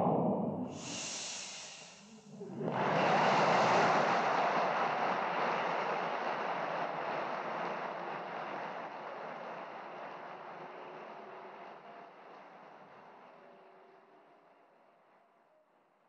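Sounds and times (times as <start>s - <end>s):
audience applauding: 2.3s - 14.6s.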